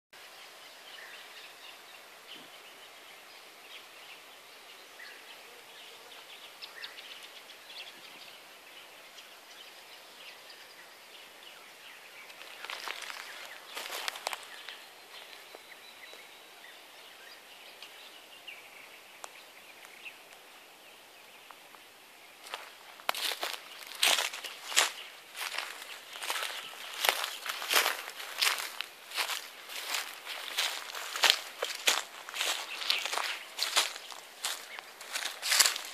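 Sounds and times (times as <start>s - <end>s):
steady hiss: 0.2s - 35.9s
rustling through dry shrubs: 11.5s - 20.5s, 21.3s - 35.9s.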